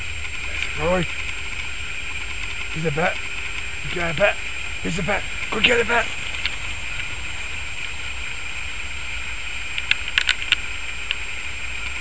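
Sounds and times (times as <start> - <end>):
outdoor hiss and low rumble: 0.0 - 12.0
sharp clicks: 0.2 - 8.0, 9.7 - 11.2.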